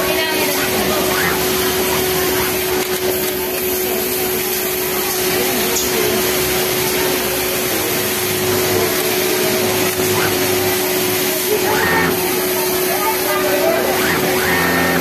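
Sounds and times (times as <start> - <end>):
sewing machine motor hum: 0.0 - 5.4, 6.1 - 15.0.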